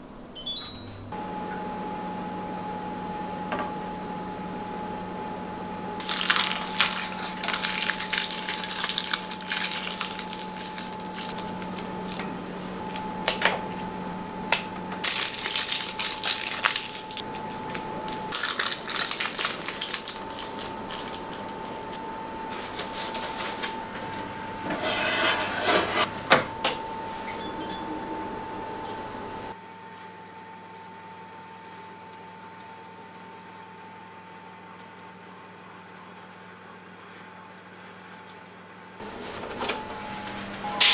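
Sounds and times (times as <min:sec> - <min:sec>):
oven panel beeps: 0:00.3 - 0:06.0, 0:26.1 - 0:29.5
aluminium foil crinkling: 0:06.0 - 0:13.9, 0:14.5 - 0:23.8.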